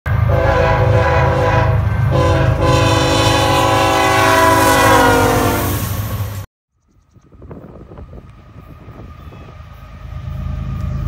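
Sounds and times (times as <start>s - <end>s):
locomotive air horn blowing: 0.1s - 6.1s
train rumbling past: 0.1s - 6.5s, 7.2s - 11.0s.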